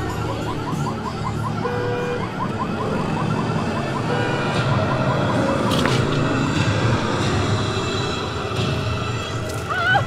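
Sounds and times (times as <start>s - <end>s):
fast yelping siren: 0.0s - 5.8s.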